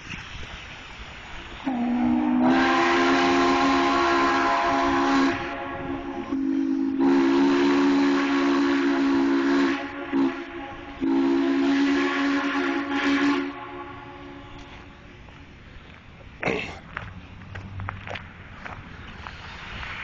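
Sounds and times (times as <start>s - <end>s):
steam hiss: 0.0s - 15.8s, 18.4s - 20.0s
steam locomotive whistle: 1.5s - 15.0s.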